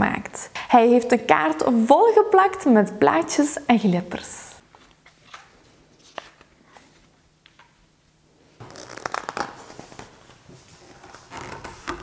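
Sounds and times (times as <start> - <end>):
book page turning: 4.7 - 7.8, 8.6 - 12.0.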